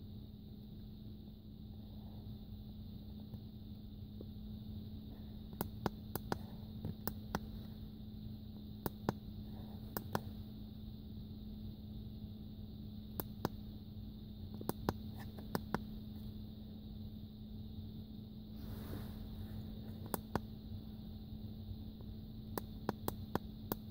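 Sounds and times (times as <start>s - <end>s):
low hum: 0.0s - 23.9s.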